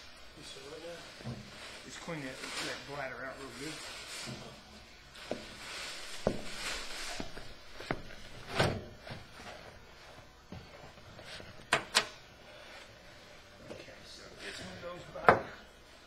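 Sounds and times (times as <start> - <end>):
rustling: 0.4 - 10.1.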